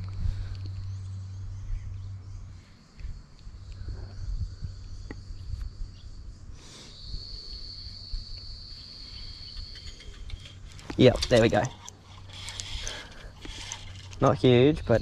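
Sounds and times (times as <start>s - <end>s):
low microphone rumble: 0.0s - 6.6s
insects chirring: 0.0s - 15.0s
brief rustle: 9.2s - 14.4s.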